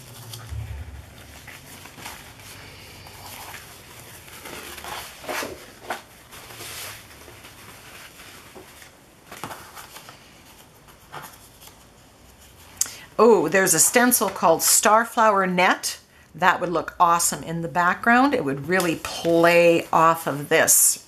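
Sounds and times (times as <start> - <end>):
paper napkins rustling: 0.0 - 12.8.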